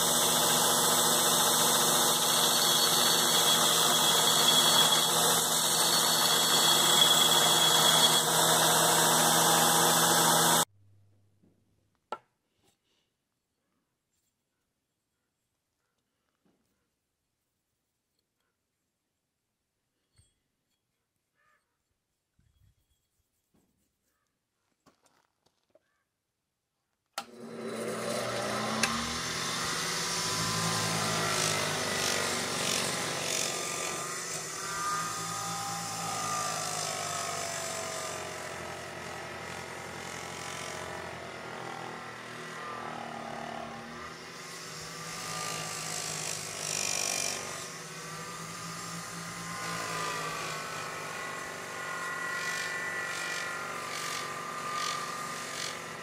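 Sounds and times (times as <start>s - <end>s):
bench grinder motor hum: 0.0s - 10.7s, 27.2s - 56.0s
metal on buffing wheel whine: 0.0s - 10.7s, 27.2s - 56.0s.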